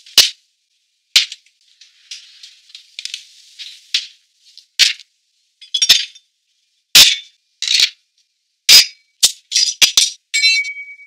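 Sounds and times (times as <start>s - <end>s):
glass bottles clinking: 5.6s - 6.2s.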